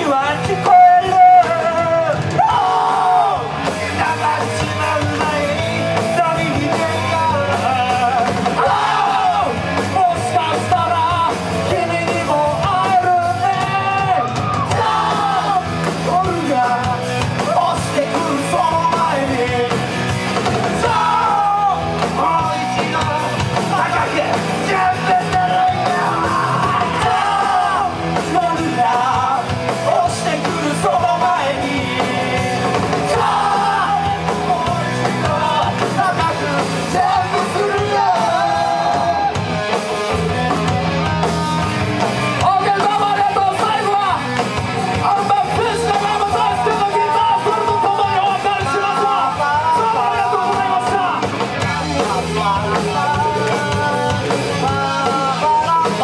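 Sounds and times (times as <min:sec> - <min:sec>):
voices singing together: 0:00.0 - 0:14.0, 0:14.6 - 0:16.9, 0:20.6 - 0:39.4
drums: 0:00.0 - 0:56.0
electric guitar: 0:00.0 - 0:56.0.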